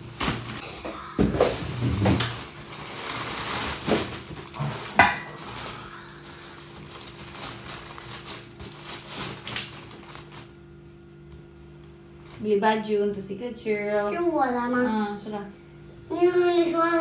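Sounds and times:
plastic packaging crinkling: 0.0s - 0.6s, 1.4s - 10.6s.

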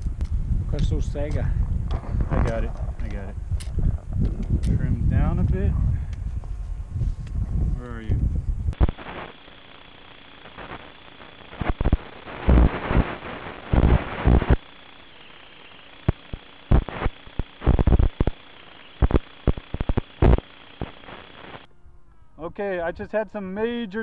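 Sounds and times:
low radio hiss: 0.0s - 5.7s, 7.8s - 24.0s
loud static bursts: 0.8s - 3.5s, 8.7s - 21.7s
faint high whine: 7.8s - 24.0s.

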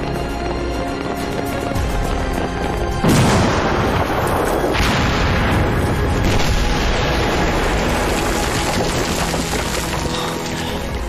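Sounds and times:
crackling noise: 0.0s - 11.0s
explosion blast and rumble: 1.8s - 10.3s.

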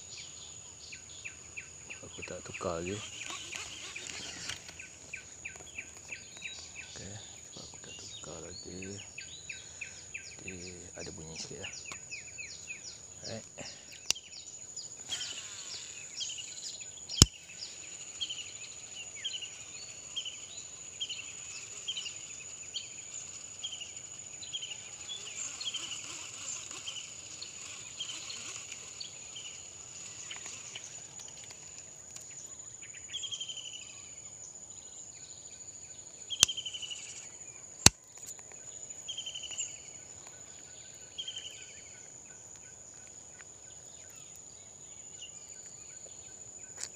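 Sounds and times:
insects droning: 0.0s - 46.9s
sharp clicks: 3.0s - 6.7s.

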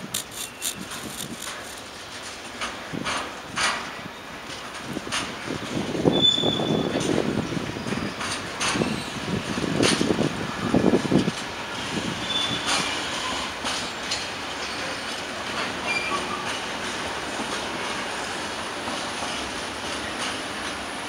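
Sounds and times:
faint high wheel squeals: 6.1s - 7.1s, 7.7s - 9.2s, 12.2s - 14.0s, 14.6s - 15.2s, 15.8s - 16.6s
train wheels clattering: 6.7s - 9.2s, 12.3s - 20.9s.

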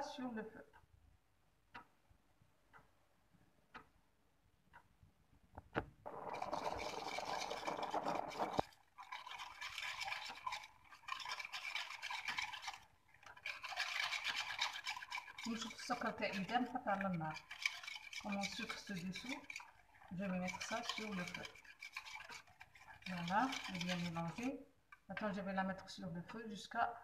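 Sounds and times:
sieve tapping: 5.8s - 25.1s
whisk beating in metal saucepan: 6.1s - 25.8s.

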